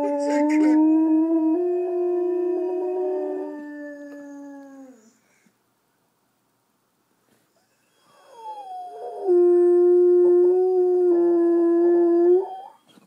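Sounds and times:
dog howling: 0:00.0 - 0:05.1, 0:08.1 - 0:12.8.

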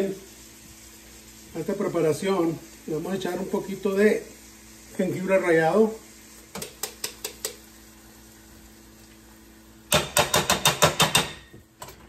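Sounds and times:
metal grater knocking on pot: 0:09.9 - 0:11.5.

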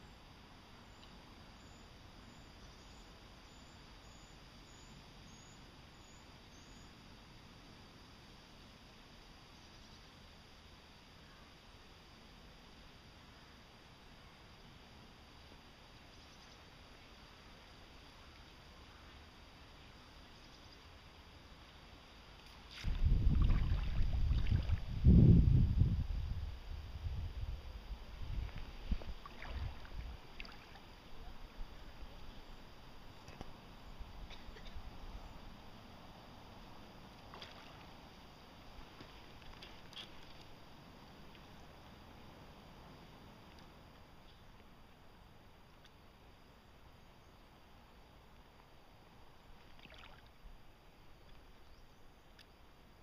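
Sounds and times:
faint steady hiss: 0:00.0 - 0:53.0
faint high-pitched chirp: 0:00.8 - 0:07.0
low rumble on microphone: 0:22.8 - 0:35.7.

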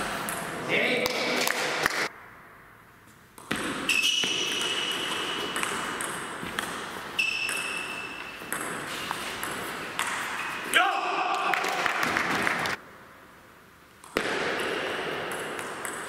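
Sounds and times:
shoes squeaking on floor: 0:03.9 - 0:05.6, 0:06.4 - 0:10.8.

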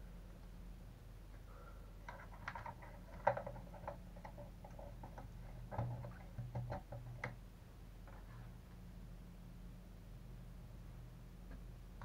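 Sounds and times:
small parts clicking and tapping: 0:02.0 - 0:07.4.

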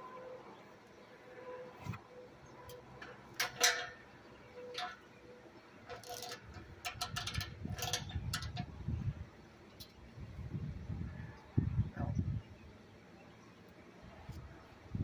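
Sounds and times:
metal parts clicking and knocking: 0:02.7 - 0:05.1, 0:05.8 - 0:08.7.

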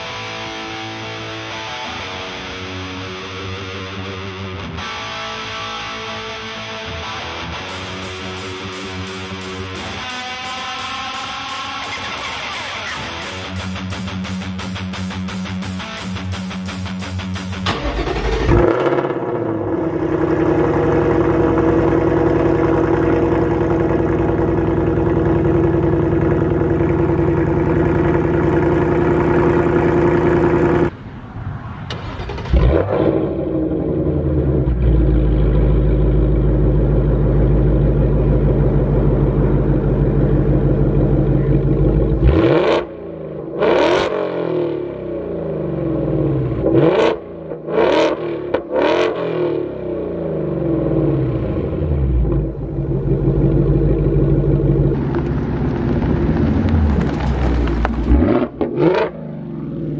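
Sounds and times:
car engine revving: 0:00.0 - 0:31.0, 0:31.9 - 0:59.9
car engine idling: 0:06.5 - 0:31.1, 0:33.4 - 0:43.5, 0:49.9 - 0:59.9.

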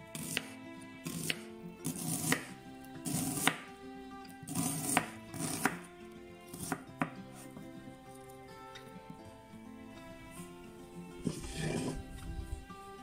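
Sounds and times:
background music: 0:00.0 - 0:13.0
knife slicing onion on board: 0:00.1 - 0:03.7, 0:04.4 - 0:05.9, 0:06.5 - 0:07.5.

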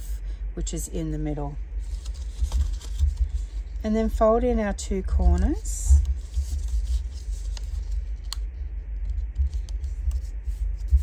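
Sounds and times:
paper scraping and rustling: 0:01.8 - 0:03.8, 0:05.4 - 0:08.4.

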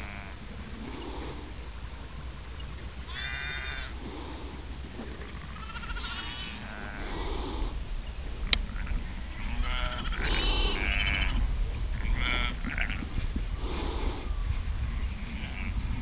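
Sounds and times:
sheep and lambs bleating: 0:00.0 - 0:00.4, 0:03.1 - 0:03.9, 0:05.4 - 0:07.3, 0:08.7 - 0:13.1, 0:14.9 - 0:15.8
steady low rumble: 0:00.0 - 0:16.0.

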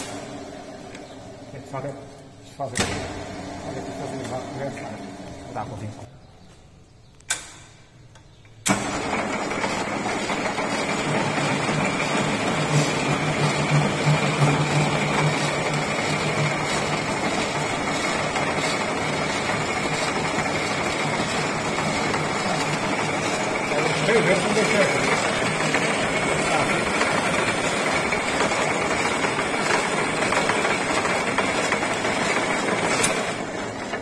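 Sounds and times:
lathe motor whirring: 0:00.0 - 0:06.1, 0:08.6 - 0:34.0.

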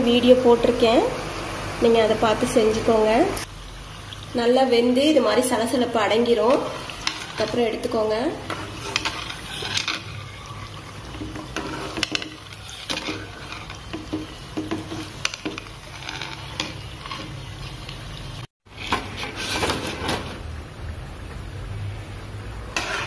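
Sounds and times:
food sizzling in hot oil: 0:00.0 - 0:23.0
steel spoon clinking and scraping pan: 0:06.4 - 0:17.5, 0:22.7 - 0:23.0.

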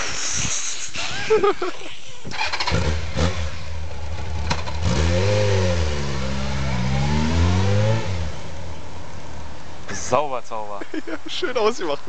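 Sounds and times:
motorcycle engine starting and revving: 0:02.2 - 0:09.6.

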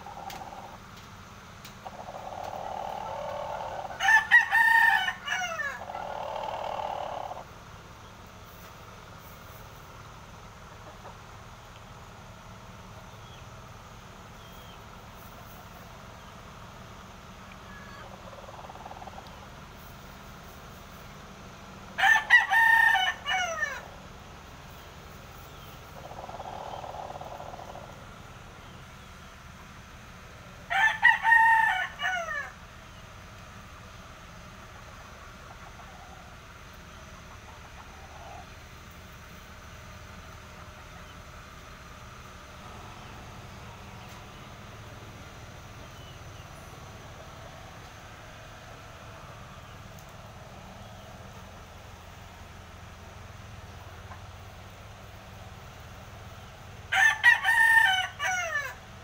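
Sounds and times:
rooster crowing: 0:01.9 - 0:07.4, 0:22.0 - 0:24.0, 0:30.7 - 0:32.6, 0:56.9 - 0:58.8.

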